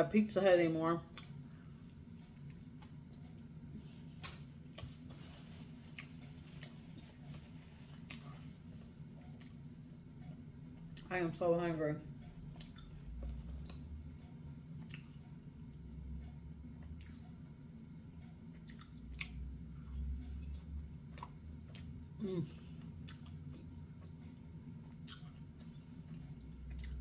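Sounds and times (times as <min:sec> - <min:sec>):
person chewing pizza: 0:01.1 - 0:09.7, 0:12.4 - 0:13.9, 0:14.8 - 0:15.4, 0:16.8 - 0:17.4, 0:18.5 - 0:27.0
wet mouth clicks: 0:17.0 - 0:17.2.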